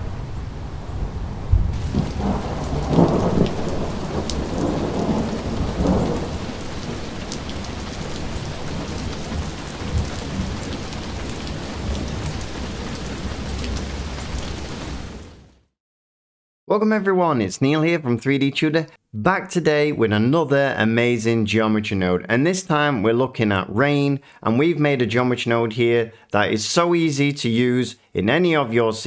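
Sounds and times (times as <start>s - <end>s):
thunder rumbling: 0.0s - 15.3s
steady rain hiss: 0.0s - 15.4s.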